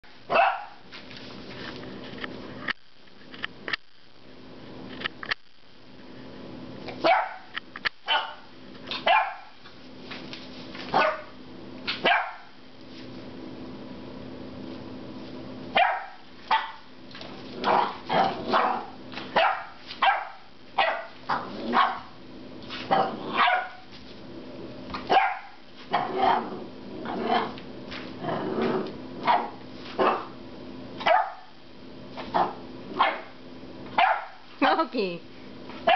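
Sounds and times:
puppy barking: 0.3s - 0.8s, 7.0s - 9.6s, 10.9s - 12.6s, 15.7s - 16.9s, 17.6s - 22.2s, 22.9s - 23.8s, 25.1s - 26.2s, 29.2s - 30.3s, 31.0s - 31.6s, 32.4s - 34.4s.

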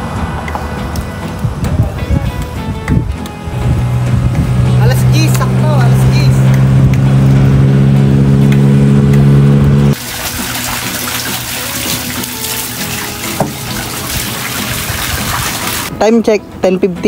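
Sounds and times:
loud steady hum: 3.3s - 10.1s
water splashing onto concrete: 10.0s - 15.9s.

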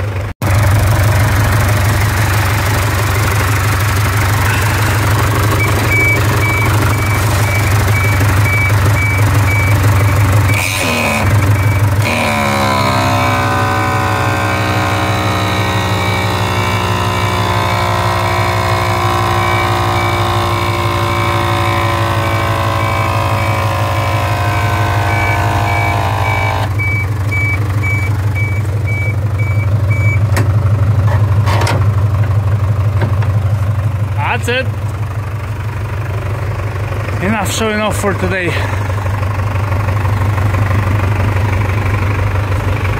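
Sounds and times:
fire pump whine: 0.0s - 30.8s
truck engine running: 0.0s - 42.9s
warning beeper: 4.2s - 30.2s.

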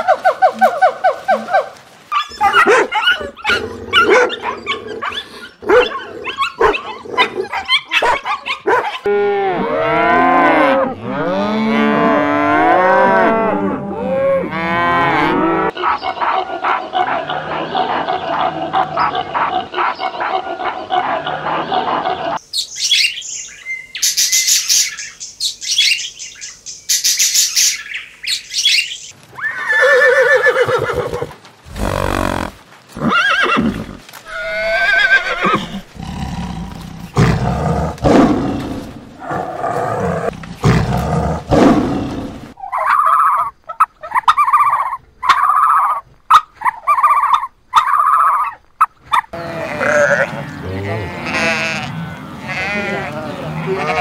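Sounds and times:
deep rumbling animal roars: 36.0s - 42.5s
evenly spaced animal calls: 42.5s - 54.0s
shrill animal calls: 42.6s - 54.0s.

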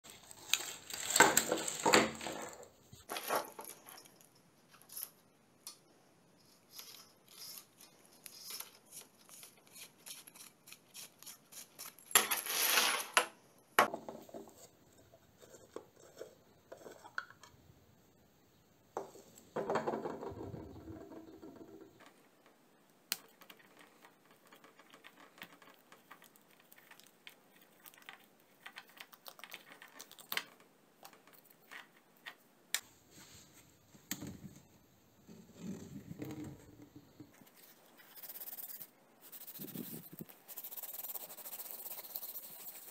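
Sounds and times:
plastic parts clicking and scraping: 0.1s - 5.8s.

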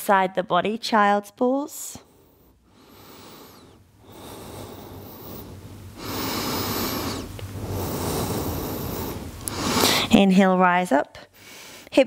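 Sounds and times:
woman breathing: 1.8s - 10.2s, 11.2s - 12.0s.

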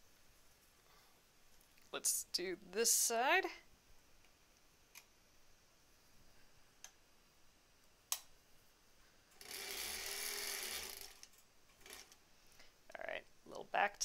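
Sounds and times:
sewing machine stitching: 9.4s - 12.2s.

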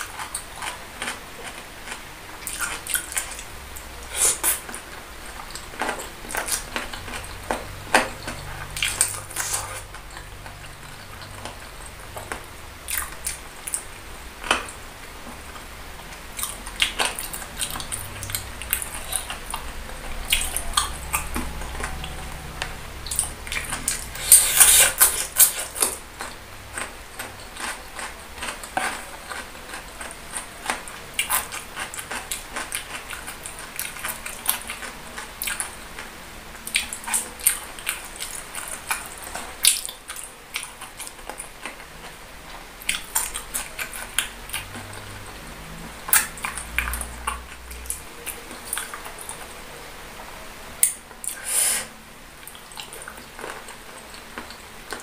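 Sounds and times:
wet chewing and mouth smacking: 0.0s - 3.5s, 4.1s - 14.8s, 15.5s - 49.5s.

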